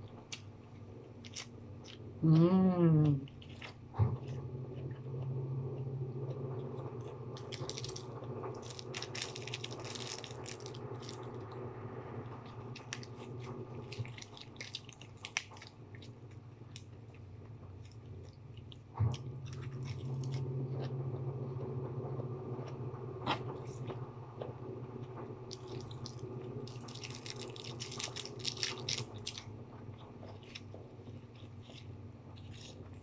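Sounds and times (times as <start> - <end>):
steady low hum: 0.0 - 33.0
lettuce crunching: 6.6 - 11.6, 12.4 - 21.0, 25.5 - 29.5, 30.1 - 33.0.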